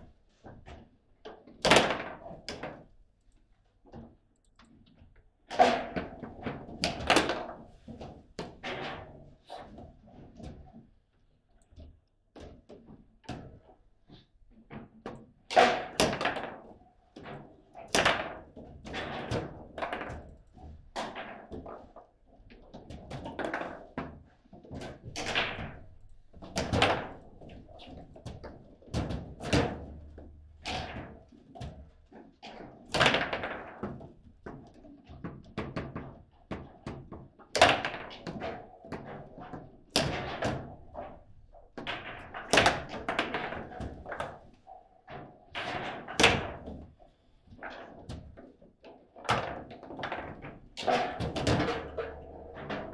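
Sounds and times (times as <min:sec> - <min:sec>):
foosball ball knocks and thunks: 0:01.5 - 0:02.8, 0:05.5 - 0:10.7, 0:14.7 - 0:20.4, 0:22.6 - 0:46.9, 0:49.2 - 0:52.9
foosball rods slammed: 0:05.5 - 0:07.5, 0:25.1 - 0:25.8, 0:26.4 - 0:27.9, 0:40.0 - 0:41.2, 0:41.8 - 0:44.2, 0:50.2 - 0:52.9.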